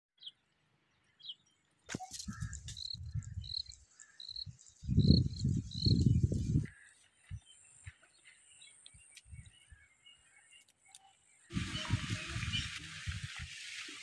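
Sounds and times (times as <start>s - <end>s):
wind rumbling on microphone: 2.1s - 7.5s, 9.0s - 9.9s, 11.5s - 14.0s.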